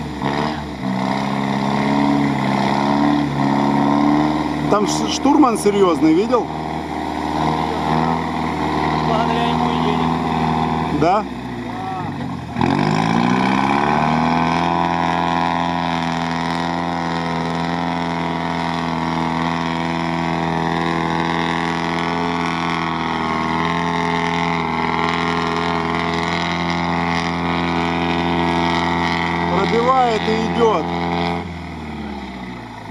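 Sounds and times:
truck engine revving: 0:00.0 - 0:32.9.

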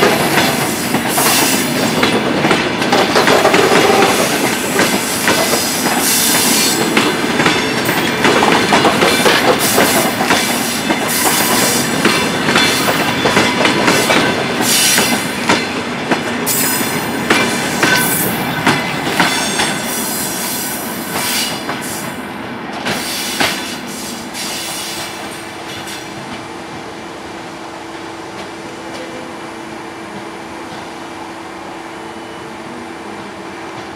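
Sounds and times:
train wheels clattering over rail joints: 0:00.0 - 0:20.2.

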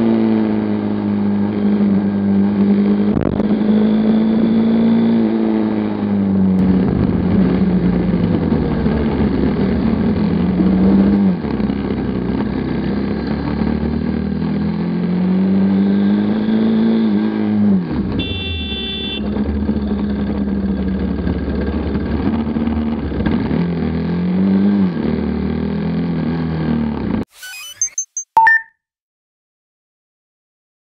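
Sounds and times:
road and wind noise: 0:00.0 - 0:27.2
motorcycle engine accelerating: 0:00.0 - 0:28.0
short high-pitched tone: 0:27.3 - 0:28.7.

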